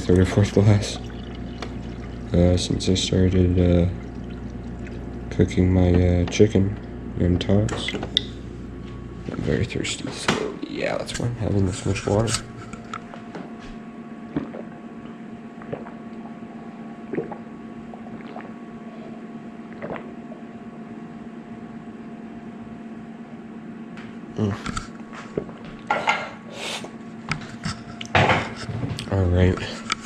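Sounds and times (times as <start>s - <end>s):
steady low hum: 0.0s - 30.0s
person gulping water: 3.8s - 5.3s, 14.2s - 20.6s, 24.4s - 25.9s.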